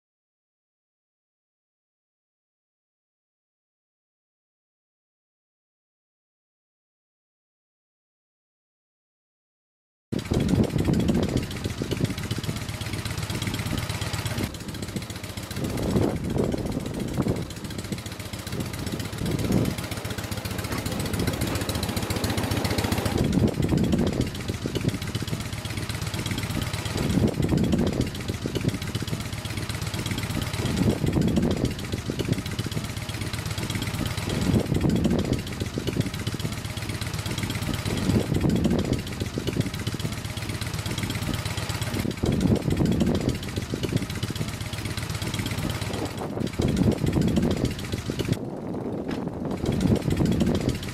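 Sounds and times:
wind buffeting microphone: 10.2 - 36.6, 37.2 - 40.0, 41.0 - 50.9
rail trolley engine running: 10.7 - 48.2.

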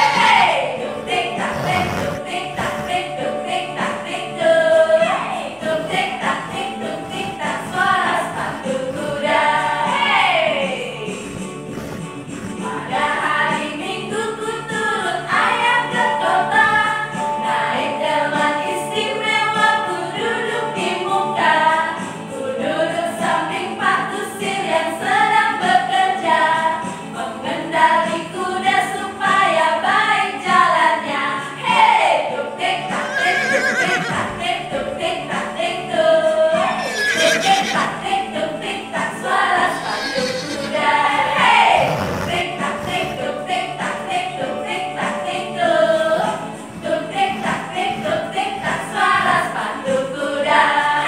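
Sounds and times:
keyboard accompaniment: 0.0 - 15.2, 32.9 - 50.2
women singing together: 0.0 - 51.0.

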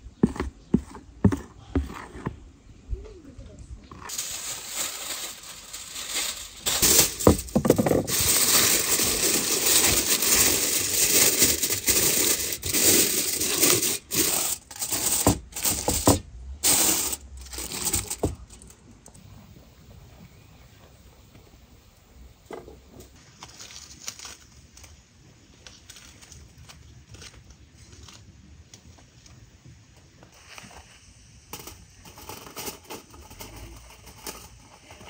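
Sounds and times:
aluminium foil rustling and crackling: 3.9 - 19.2, 22.9 - 29.4, 30.3 - 35.0.

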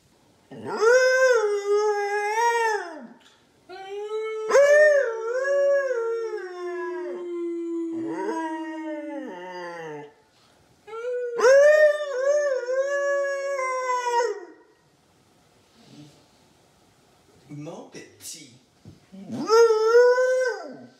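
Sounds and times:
husky howling: 0.5 - 10.2, 10.9 - 14.7
person howling: 6.1 - 10.1.

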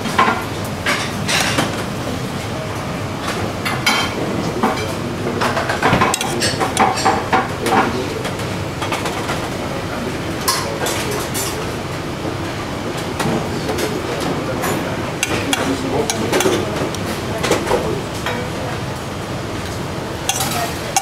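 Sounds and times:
metal spoon clinking on pan and plate: 20.3 - 21.0.

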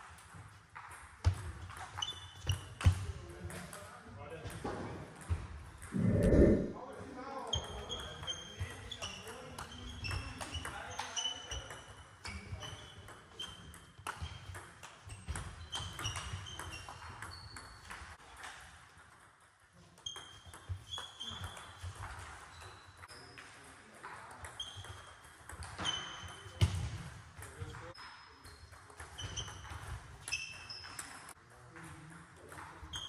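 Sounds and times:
shoes squeaking on floor: 28.2 - 31.2.

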